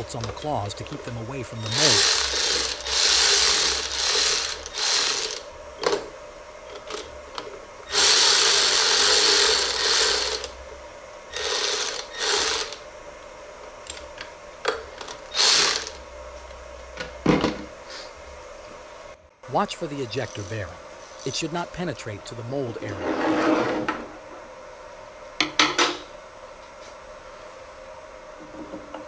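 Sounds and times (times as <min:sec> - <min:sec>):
cordless drill tightening bolts: 0:01.6 - 0:05.4.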